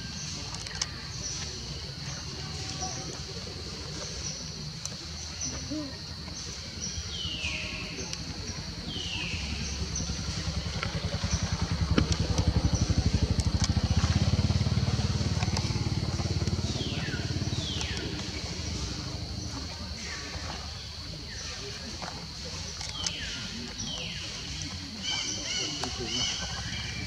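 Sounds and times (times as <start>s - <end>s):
passing engine pulsing: 7.6s - 27.0s.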